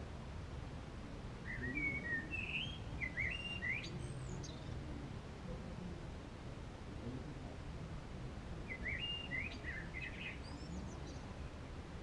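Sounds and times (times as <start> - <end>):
songbird twittering: 1.4 - 4.8, 8.6 - 11.3.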